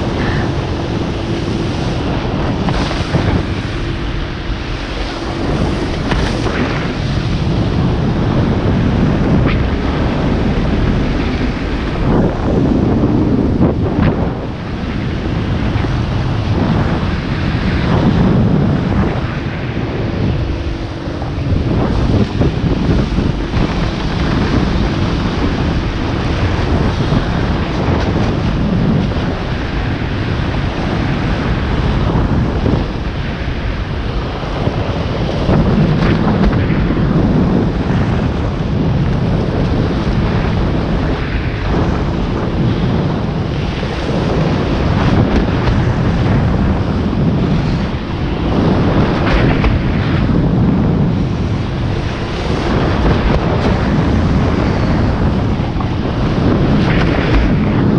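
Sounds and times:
wind buffeting microphone: 0.0 - 57.9.

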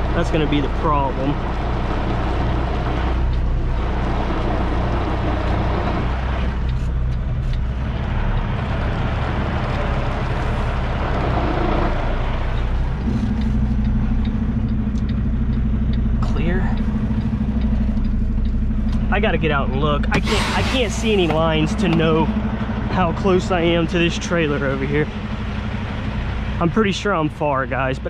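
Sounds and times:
diesel truck engine running: 0.0 - 28.0.

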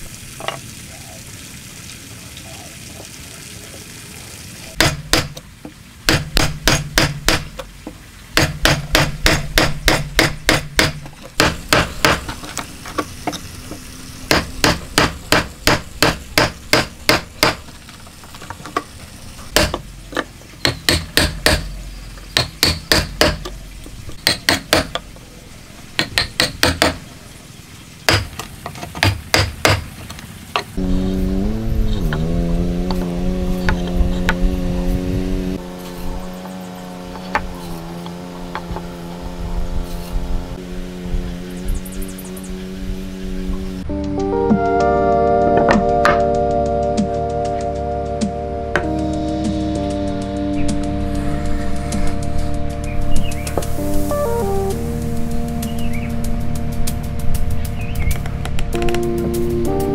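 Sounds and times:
wooden mallet striking chisel: 4.8 - 5.4, 6.1 - 7.6, 8.4 - 12.4, 14.3 - 17.6, 19.5 - 21.7, 22.3 - 23.6, 24.2 - 25.0, 26.0 - 27.0, 28.1 - 29.8.

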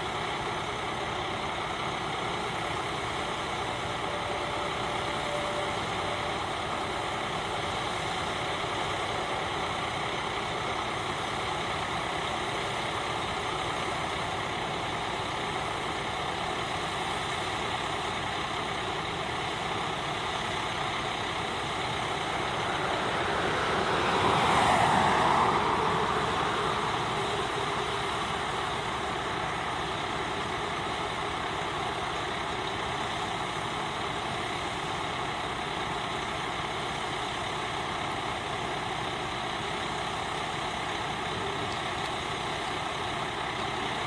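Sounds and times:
fire truck engines: 0.0 - 44.0.

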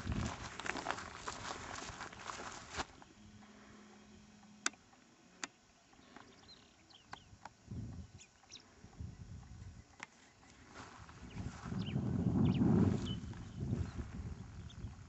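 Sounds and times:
rustling: 0.0 - 3.0
sharp clicks: 4.4 - 7.6
faint high chirps: 5.5 - 15.0.

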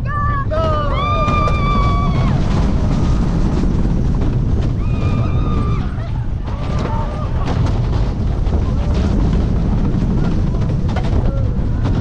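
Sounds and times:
roller coaster wheels on track: 0.0 - 12.0
rushing wind: 0.0 - 12.0.

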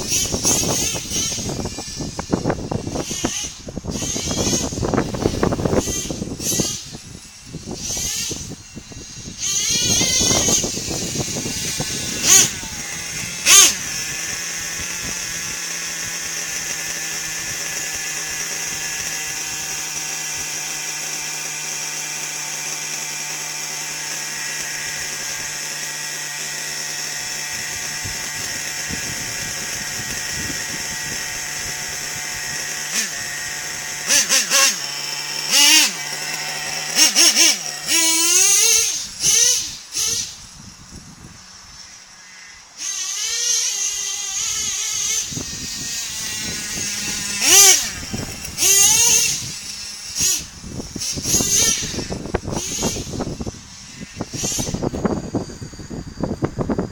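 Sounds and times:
toy truck motor whining: 0.0 - 56.9.

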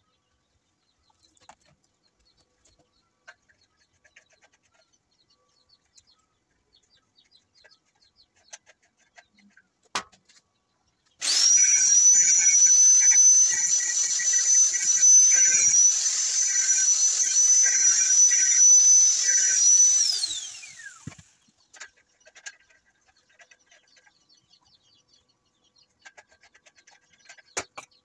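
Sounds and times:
angle grinder grinding metal: 11.2 - 21.3
grinder disc spinning down: 11.2 - 21.4.

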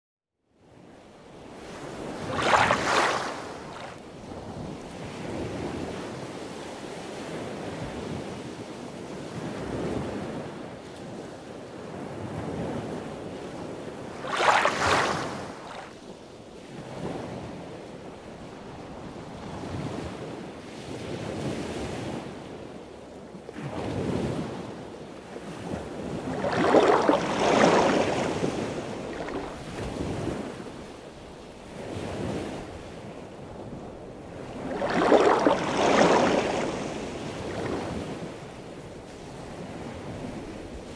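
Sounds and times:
rushing surf-like noise: 26.3 - 29.6, 34.6 - 37.7.

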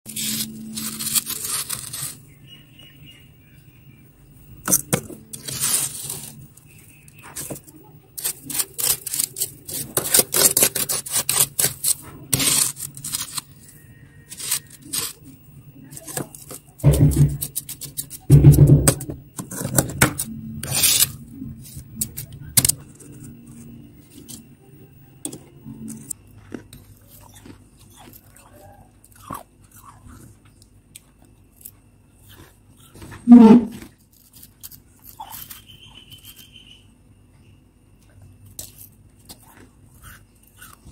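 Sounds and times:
fingers scraping freezer frost: 0.1 - 2.3, 5.3 - 18.3, 19.4 - 24.4.

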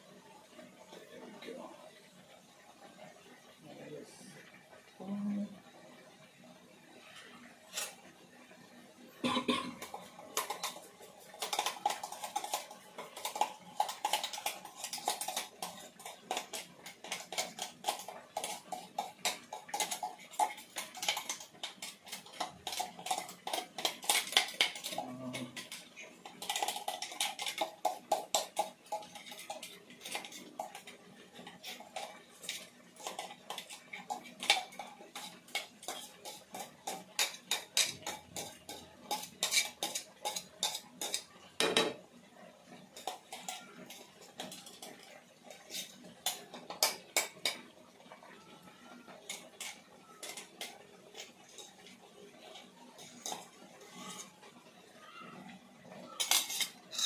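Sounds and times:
metal spatula scraping a pan: 11.5 - 41.3, 49.2 - 54.5, 56.2 - 57.0.

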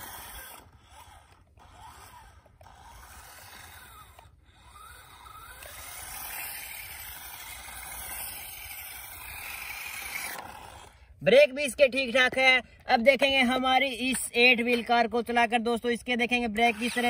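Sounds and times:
toy car electric motor whining: 0.0 - 11.1, 16.4 - 17.0.

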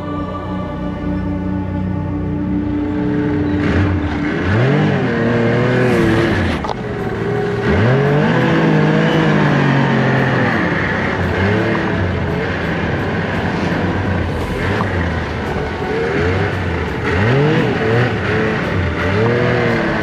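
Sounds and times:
snowmobile engine revving: 2.2 - 20.0.

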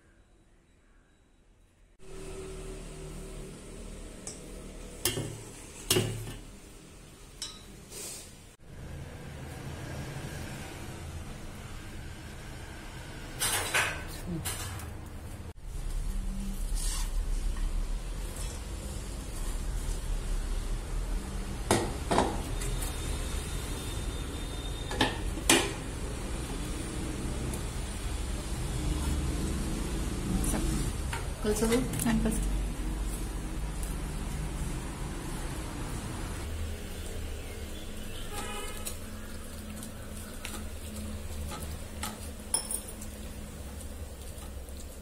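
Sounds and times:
steel bowls clinking: 7.4 - 7.8, 38.0 - 43.3
hand mixing dough in a bowl: 15.7 - 20.6, 26.3 - 45.0.

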